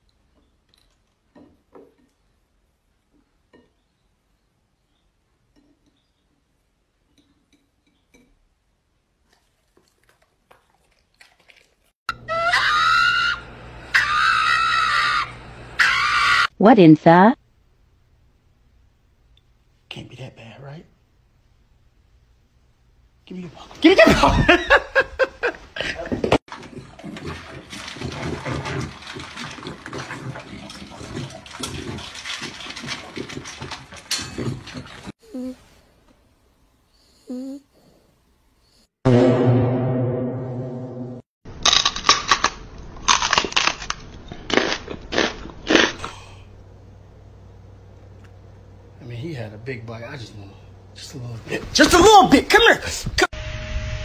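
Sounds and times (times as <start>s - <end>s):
dog screaming harshly: 12.1s - 16.6s.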